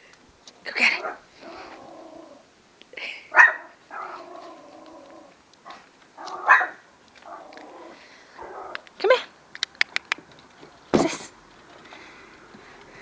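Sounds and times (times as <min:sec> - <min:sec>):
dog growling: 0:01.0 - 0:02.4, 0:03.9 - 0:08.8
puppy barking sharply: 0:03.4 - 0:04.1, 0:06.3 - 0:06.8.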